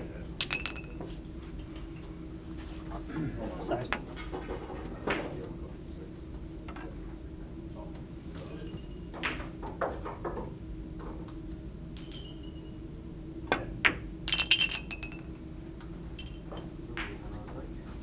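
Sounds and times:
faint hum: 0.0s - 18.0s
billiard balls clicking: 0.4s - 1.1s, 12.0s - 12.5s, 13.8s - 15.4s.

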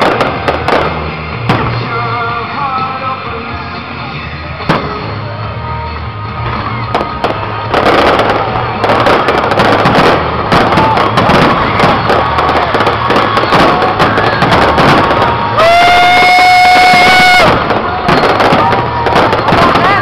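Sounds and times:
firework bang: 0.0s - 2.0s, 4.6s - 5.3s, 6.4s - 20.0s
firework shells bursting: 6.5s - 20.0s.

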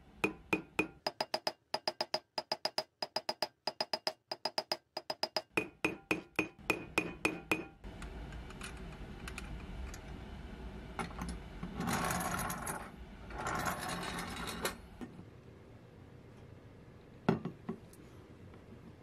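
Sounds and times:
tool tapping metal axle: 0.2s - 7.8s.

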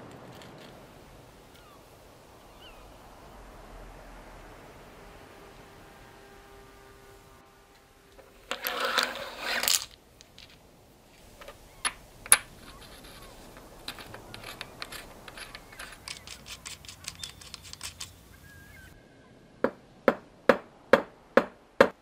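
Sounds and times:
steel tool tips clattering: 11.2s - 18.2s.

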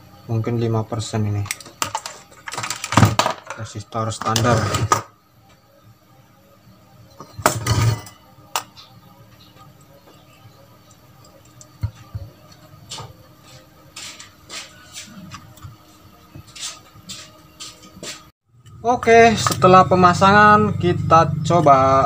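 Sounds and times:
clicks and clatter of handling parts: 1.4s - 5.0s.

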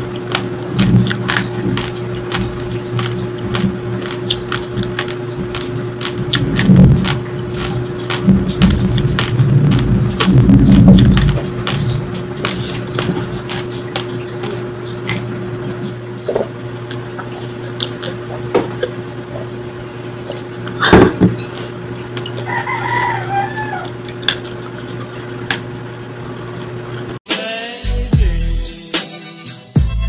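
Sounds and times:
person drinking water: 0.0s - 19.6s
steady low hum: 0.0s - 27.2s
rooster crowing: 22.3s - 24.0s.

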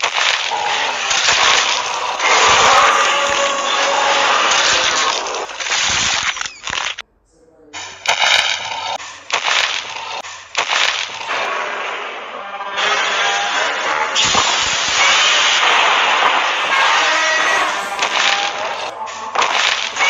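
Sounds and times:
noisy blasts and crashes: 0.0s - 7.0s, 7.8s - 20.0s
short pitched sound: 15.6s - 19.3s.

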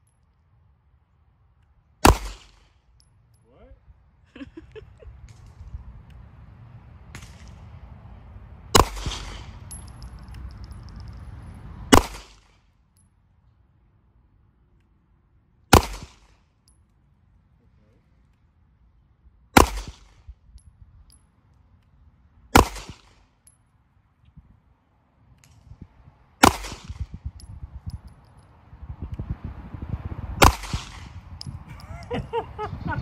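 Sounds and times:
pistol shots with echo: 2.0s - 2.6s, 8.8s - 9.5s, 15.7s - 16.3s, 19.6s - 20.1s, 22.5s - 23.2s, 26.4s - 27.0s, 30.4s - 31.2s.

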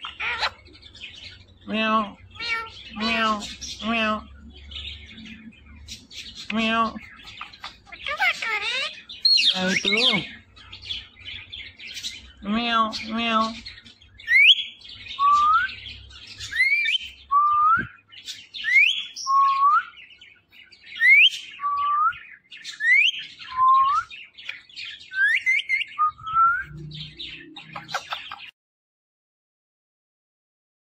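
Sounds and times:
parakeet chattering: 0.0s - 5.1s, 5.7s - 14.7s, 27.0s - 28.5s.

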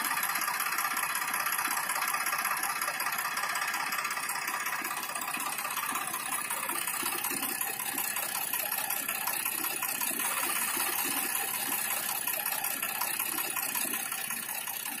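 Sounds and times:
small gear motor whirring: 4.9s - 15.0s.

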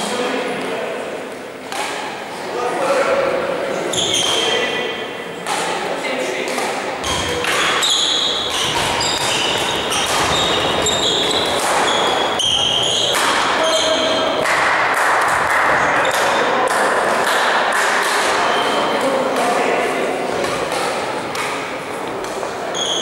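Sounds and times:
racket hitting shuttlecock: 1.6s - 2.2s, 5.4s - 23.0s
shoes squeaking on court floor: 3.9s - 5.7s, 6.6s - 14.4s, 18.3s - 19.1s, 22.1s - 23.0s.

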